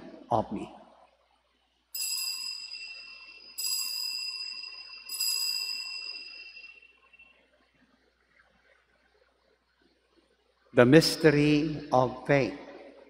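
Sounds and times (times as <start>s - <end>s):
altar bell ringing: 1.9s - 7.5s.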